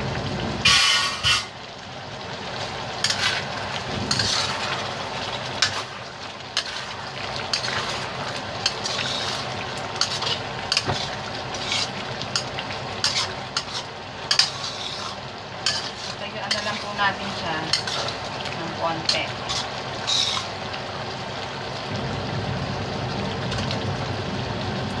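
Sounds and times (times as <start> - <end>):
curry simmering: 0.0 - 25.0
spatula scraping a wok: 0.7 - 1.6, 3.0 - 20.6.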